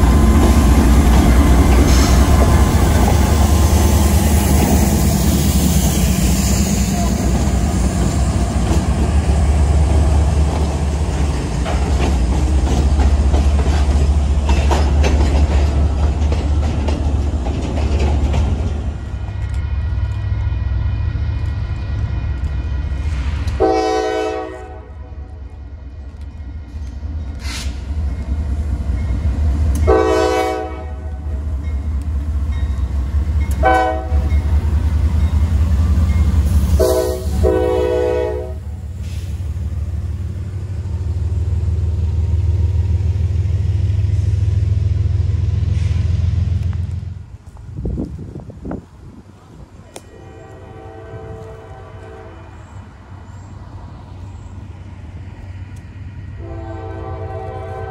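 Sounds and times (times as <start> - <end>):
diesel locomotive rumble: 0.0 - 57.9
freight train rumbling past: 0.0 - 57.9
locomotive air horn blasts: 23.6 - 25.3, 29.8 - 31.2, 33.6 - 34.3, 36.7 - 38.7, 50.0 - 52.7, 56.4 - 57.9.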